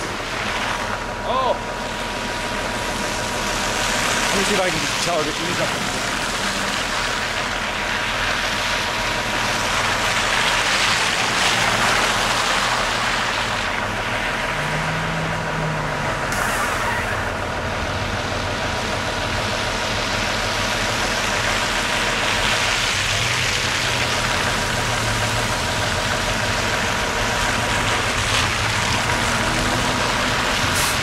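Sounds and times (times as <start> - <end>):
bus engine drone: 0.0 - 31.0
tyres churning snow: 0.0 - 31.0.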